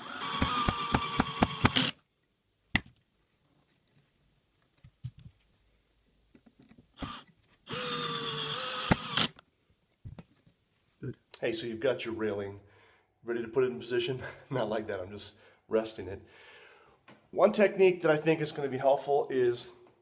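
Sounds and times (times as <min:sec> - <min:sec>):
power drill driving screw: 0:00.0 - 0:02.0, 0:07.0 - 0:09.4.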